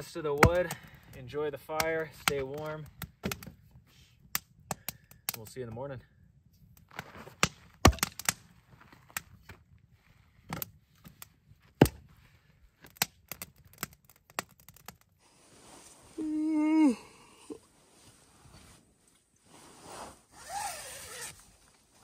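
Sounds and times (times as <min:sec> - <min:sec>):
campfire crackling and popping: 0:00.0 - 0:05.6, 0:06.5 - 0:09.8, 0:12.8 - 0:15.2
person's falling vocal sound: 0:16.1 - 0:17.7.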